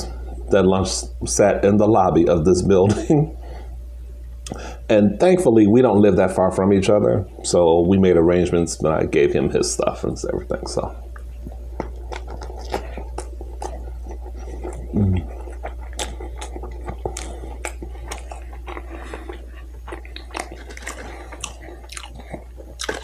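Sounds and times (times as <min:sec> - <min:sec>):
steady low hum: 0:00.0 - 0:23.0
man chewing with wet mouth smacks: 0:11.0 - 0:23.0.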